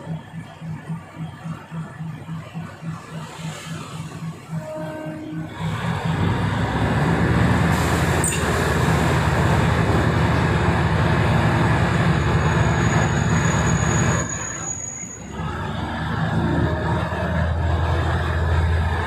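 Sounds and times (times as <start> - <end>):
train rumbling on rails: 0.0 - 19.0
thin high squeal: 12.6 - 15.3.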